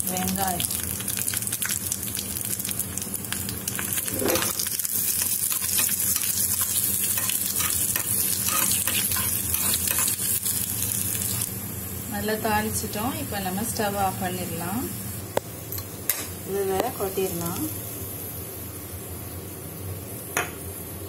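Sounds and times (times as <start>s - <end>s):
food sizzling in hot oil: 0.0s - 21.0s
spoon scraping a pan: 4.1s - 4.6s, 5.5s - 10.2s.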